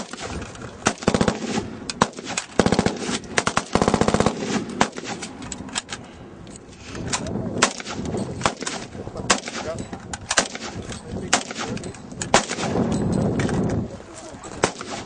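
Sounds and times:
rifle automatic bursts: 0:00.0 - 0:05.4
single rifle shots: 0:00.0 - 0:05.4, 0:07.6 - 0:12.9, 0:14.6 - 0:15.0.

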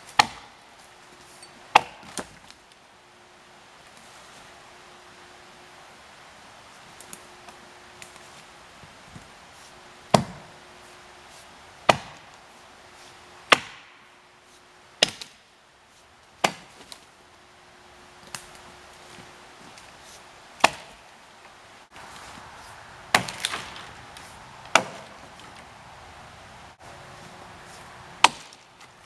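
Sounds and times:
axe chopping into wood: 0:00.1 - 0:00.6, 0:01.7 - 0:02.3, 0:10.1 - 0:10.5, 0:11.8 - 0:12.3, 0:13.5 - 0:14.0, 0:15.0 - 0:15.4, 0:16.4 - 0:17.0, 0:20.6 - 0:21.0, 0:23.1 - 0:23.9, 0:24.7 - 0:25.2, 0:28.2 - 0:28.6.

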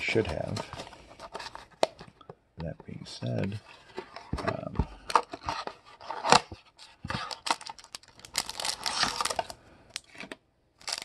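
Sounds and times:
wrapper rustling: 0:07.2 - 0:10.1, 0:10.8 - 0:11.0.

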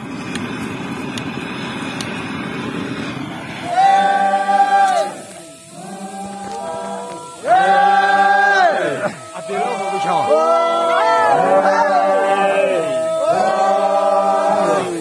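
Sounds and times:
gas torch burning: 0:00.0 - 0:15.0
men chanting in unison: 0:03.6 - 0:15.0.

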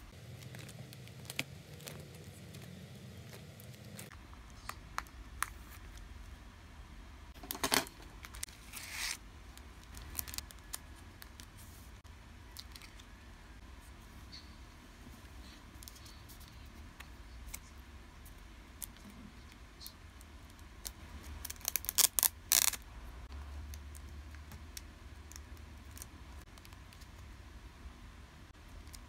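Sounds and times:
plastic sleeves crinkling: 0:00.1 - 0:04.1, 0:08.3 - 0:11.8, 0:21.1 - 0:22.8.

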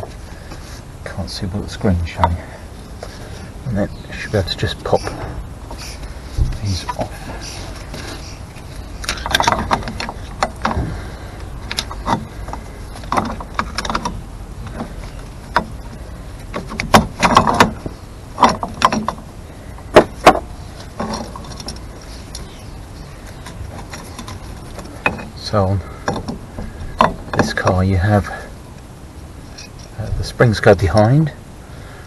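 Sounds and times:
metallic clicks and clanks: 0:09.0 - 0:10.8.

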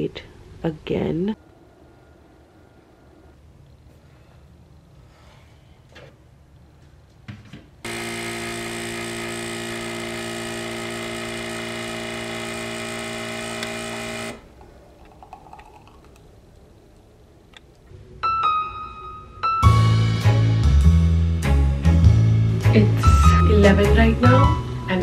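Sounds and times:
espresso machine pump buzzing: 0:07.9 - 0:14.6
coffee pouring into mug: 0:14.6 - 0:16.4.

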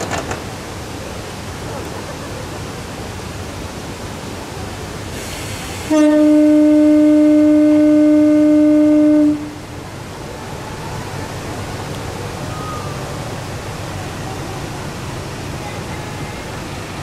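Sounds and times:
steady hiss: 0:00.0 - 0:17.0
train horn blast: 0:05.8 - 0:09.7.

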